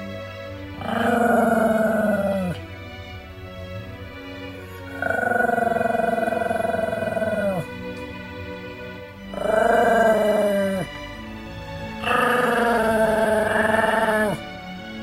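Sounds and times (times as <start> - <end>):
background music: 0.0 - 15.0
small dog howling: 0.8 - 2.6, 5.0 - 7.7, 9.4 - 11.0, 12.0 - 14.4.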